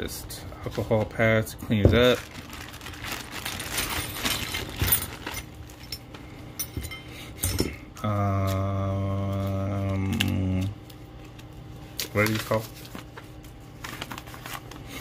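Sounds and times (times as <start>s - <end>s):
plastic bag crinkling: 0.7s - 5.9s, 12.0s - 15.0s
man humming a low note: 8.0s - 10.8s.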